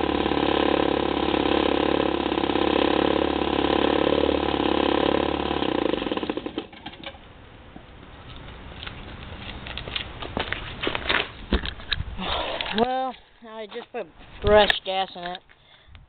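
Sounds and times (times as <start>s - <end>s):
snowblower engine running: 0.0s - 7.2s.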